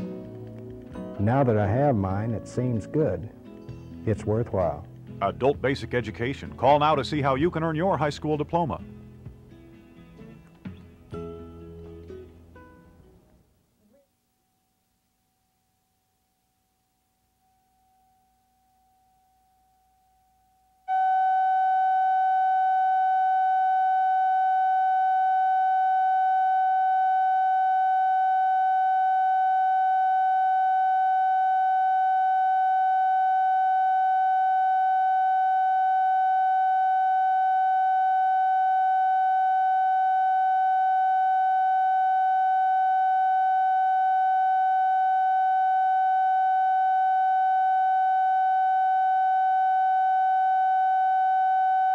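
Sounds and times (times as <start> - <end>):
electronic test tone: 20.9 - 51.9.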